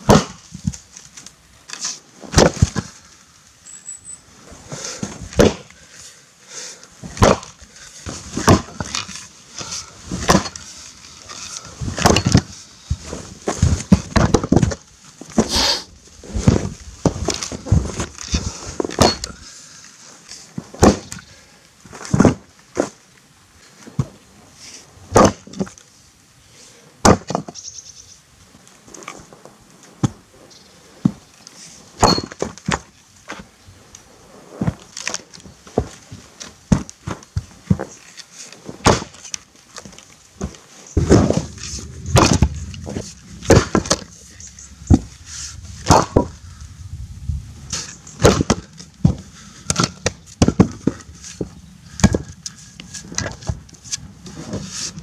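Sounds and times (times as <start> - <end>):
axe splitting firewood: 0.0 - 0.9, 1.7 - 3.0, 4.7 - 5.8, 7.0 - 19.5, 20.6 - 21.3, 22.0 - 23.0, 25.1 - 25.8, 27.0 - 27.6, 32.0 - 33.4, 34.6 - 44.2, 44.9 - 46.4, 47.7 - 55.0
low rumble: 41.0 - 48.2.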